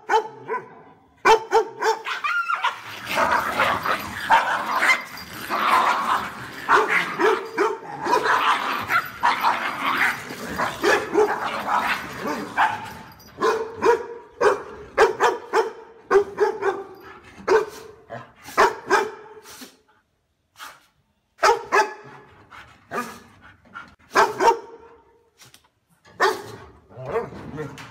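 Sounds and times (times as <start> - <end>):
dogs barking: 0.0 - 5.2, 5.8 - 17.9, 18.5 - 19.4, 21.4 - 22.2, 24.1 - 24.9, 26.2 - 26.6.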